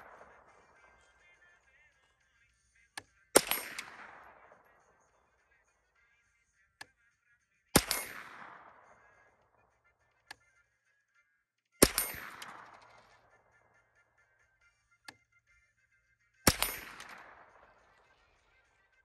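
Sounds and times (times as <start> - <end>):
rifle shots echoing: 0.0 - 1.7, 3.3 - 5.3, 7.8 - 9.6, 11.8 - 13.7, 16.5 - 18.8.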